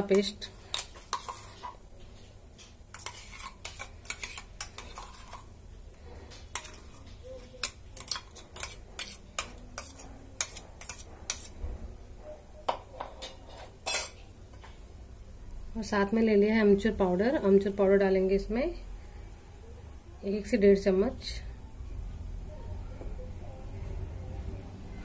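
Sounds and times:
spoon scraping metal bowl: 0.0s - 1.8s, 2.9s - 5.5s, 6.2s - 11.6s, 12.7s - 14.2s.

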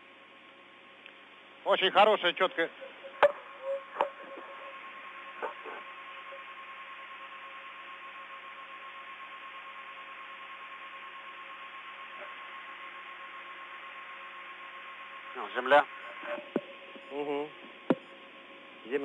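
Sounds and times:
radio hiss: 1.6s - 7.7s, 14.8s - 18.1s.

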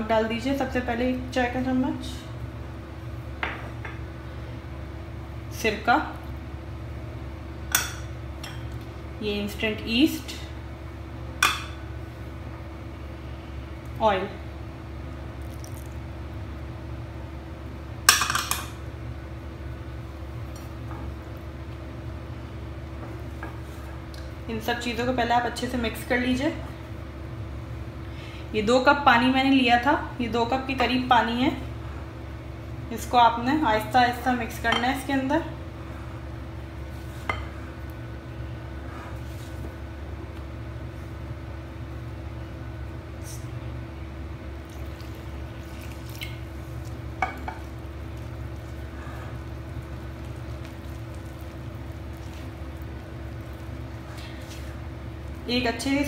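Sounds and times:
faint steady hum: 0.0s - 56.0s.

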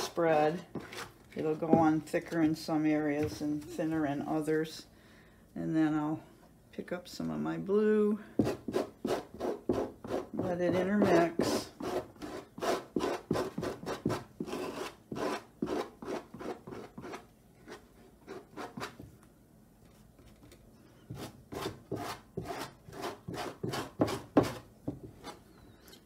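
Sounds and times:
palette knife scraping textured panel: 8.5s - 19.0s, 21.1s - 24.6s.

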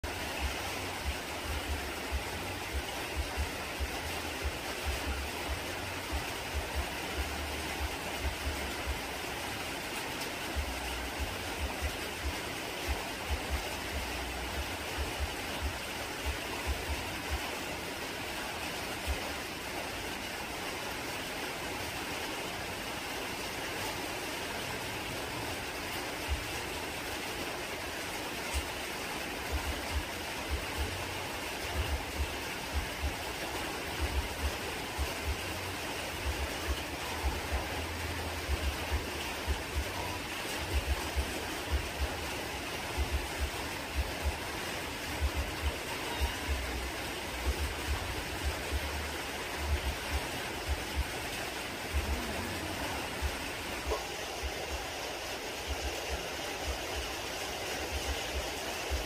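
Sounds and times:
steady hissing rush: 0.0s - 59.0s
irregular low thumps: 34.0s - 35.5s, 38.4s - 39.9s, 43.0s - 44.4s, 45.2s - 46.8s, 47.4s - 49.0s, 49.6s - 54.7s.

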